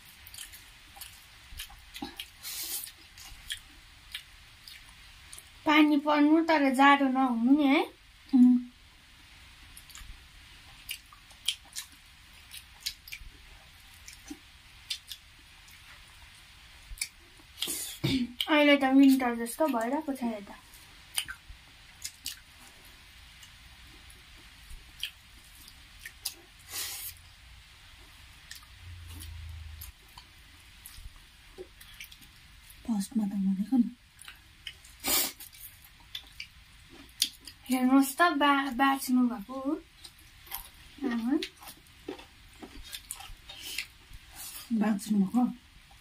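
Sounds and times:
chewing and lip smacks: 0.0 - 5.5, 9.8 - 10.1, 10.7 - 17.9, 21.1 - 21.4, 22.0 - 22.5, 23.4 - 26.5, 28.0 - 32.8, 34.2 - 37.6, 41.4 - 44.3.

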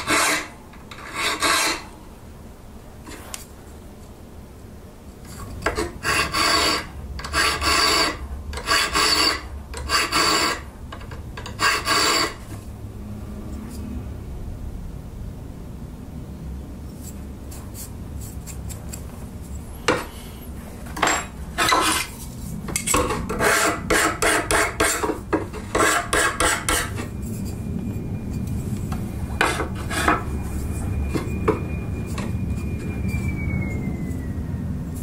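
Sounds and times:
hand file rasping on steel: 0.0 - 1.8, 5.6 - 10.6, 11.4 - 12.4, 23.3 - 27.1.

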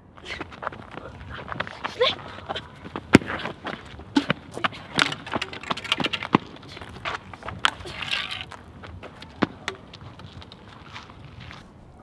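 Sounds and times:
footsteps on asphalt: 0.0 - 12.0.

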